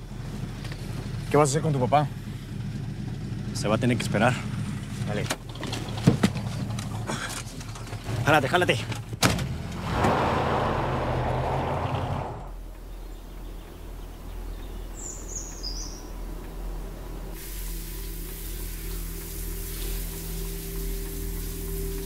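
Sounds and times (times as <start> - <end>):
high bird chirp: 12.8 - 16.2
steady hiss: 17.3 - 22.0.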